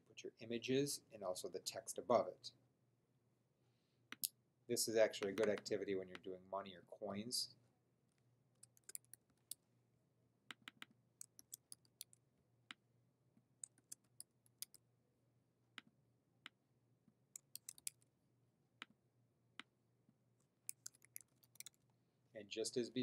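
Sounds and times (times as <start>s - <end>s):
computer keyboard typing: 5.2s - 5.7s, 8.6s - 9.6s, 10.5s - 12.1s, 13.6s - 14.8s, 17.4s - 18.0s, 20.7s - 21.8s.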